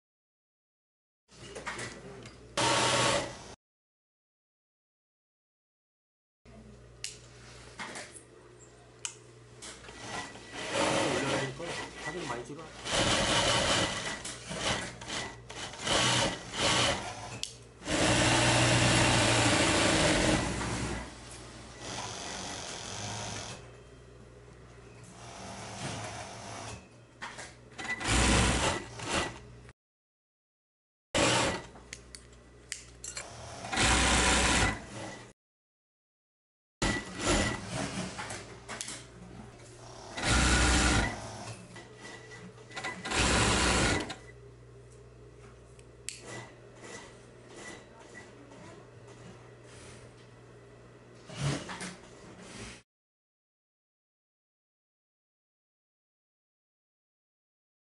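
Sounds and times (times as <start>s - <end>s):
sewing machine stitching: 2.6s - 3.4s, 9.9s - 21.1s, 27.8s - 29.4s, 31.2s - 31.7s, 33.3s - 35.3s, 36.8s - 38.9s, 39.9s - 44.2s, 51.3s - 52.0s.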